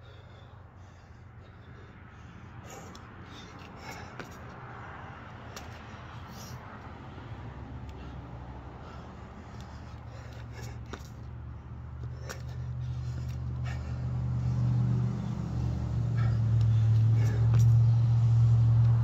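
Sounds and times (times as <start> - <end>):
vehicle engine running: 1.4 - 19.0.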